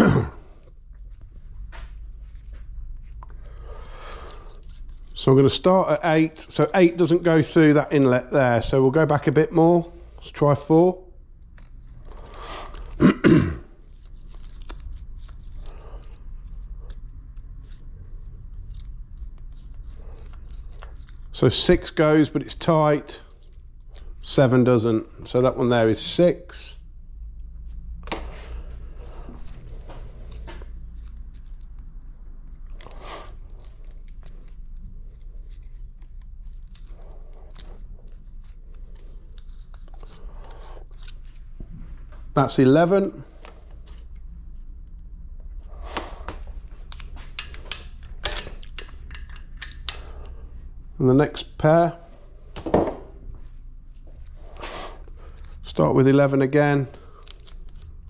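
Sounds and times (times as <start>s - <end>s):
man coughing: 0.0s - 0.5s, 13.0s - 13.7s
steady low hum: 0.0s - 58.0s.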